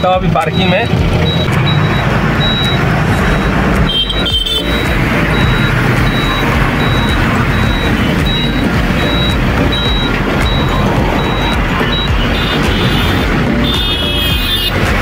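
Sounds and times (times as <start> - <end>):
road noise: 0.0 - 15.0
truck engine running: 0.0 - 15.0
faint high beep: 0.5 - 12.2.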